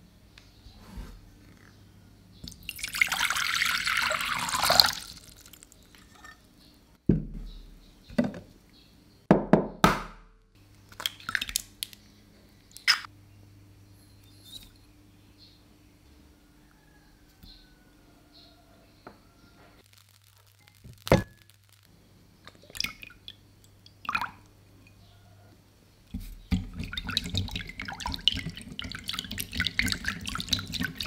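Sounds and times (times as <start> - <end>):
water pouring into glass bowl: 2.6 - 5.8, 26.7 - 31.0.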